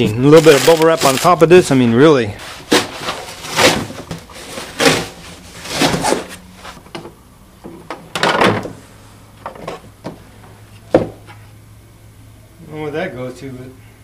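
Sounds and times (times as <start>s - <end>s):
cardboard and plastic rustling: 0.0s - 1.7s, 2.4s - 6.9s.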